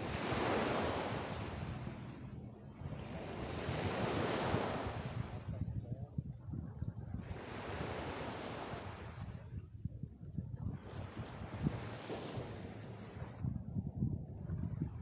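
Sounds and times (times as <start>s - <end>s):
small waves breaking on beach: 0.0s - 5.5s, 7.2s - 9.5s, 10.7s - 13.5s
wind buffeting microphone: 0.0s - 15.0s.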